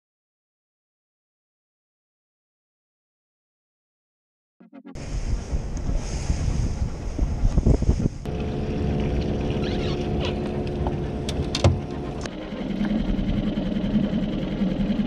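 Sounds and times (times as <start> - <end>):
outboard motor running: 5.0 - 15.0.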